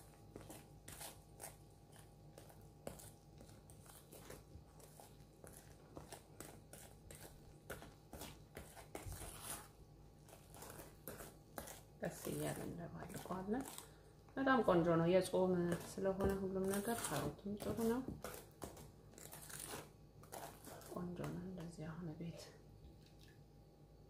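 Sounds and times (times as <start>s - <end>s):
whisk scraping metal bowl: 2.4s - 14.0s, 14.6s - 21.7s.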